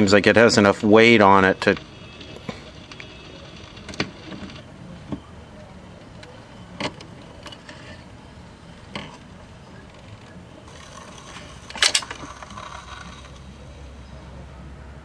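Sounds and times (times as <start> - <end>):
record changer mechanical clicks: 10.7 - 13.9.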